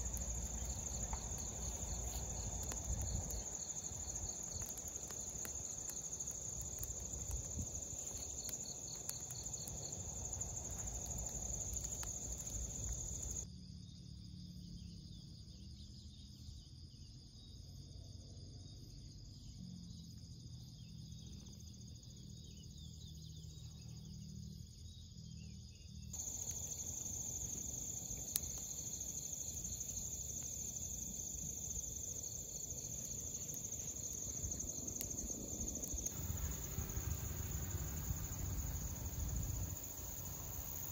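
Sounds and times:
faint clicks: 0:00.0 - 0:13.4
crickets and insects chirping: 0:00.0 - 0:40.9.

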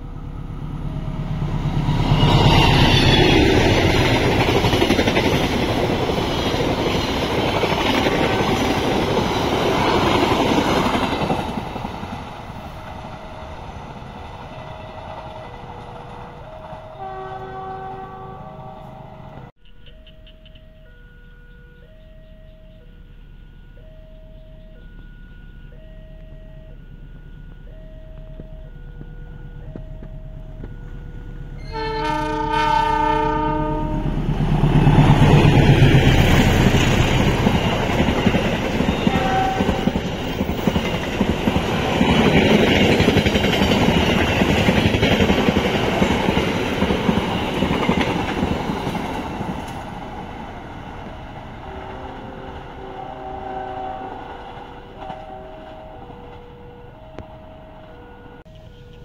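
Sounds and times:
diesel locomotive horn: 0:00.0 - 0:11.3, 0:12.6 - 0:19.5, 0:20.8 - 0:40.8, 0:49.7 - 0:59.0
train passing with wheel noise: 0:00.0 - 0:59.0
level crossing alarm chiming: 0:20.0 - 0:32.0, 0:54.0 - 0:59.0.

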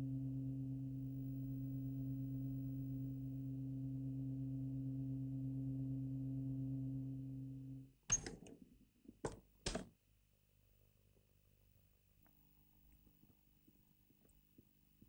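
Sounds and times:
low hum with overtones: 0:00.0 - 0:08.3.

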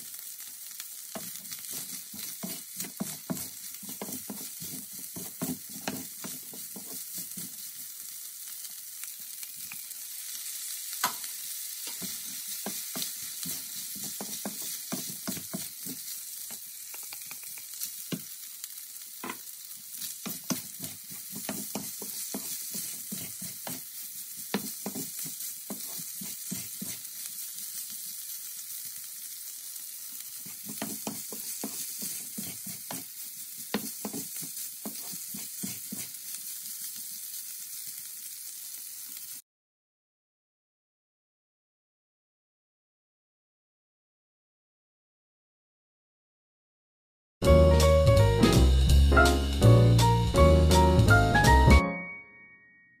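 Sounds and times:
rice sizzling in a frying pan: 0:00.0 - 0:39.4
spatula tapping and scraping pan: 0:01.2 - 0:07.7, 0:11.0 - 0:11.3, 0:11.9 - 0:18.3, 0:19.2 - 0:27.1, 0:30.4 - 0:36.2.

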